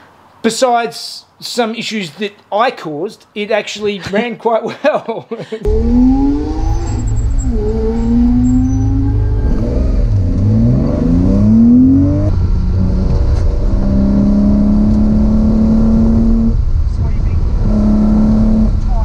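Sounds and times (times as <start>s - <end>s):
car engine accelerating: 5.6s - 19.0s.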